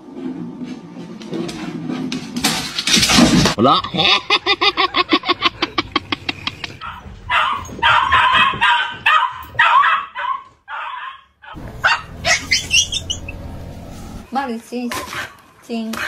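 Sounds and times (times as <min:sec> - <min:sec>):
dogs vocalizing: 0:11.4 - 0:13.5.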